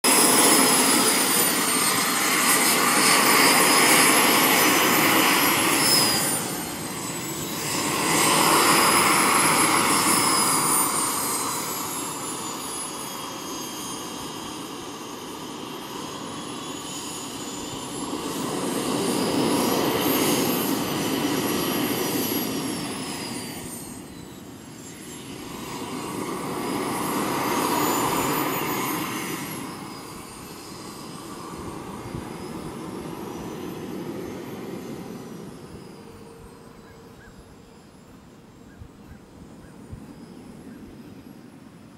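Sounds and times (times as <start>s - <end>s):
model jet turbine whine: 0.0s - 41.9s.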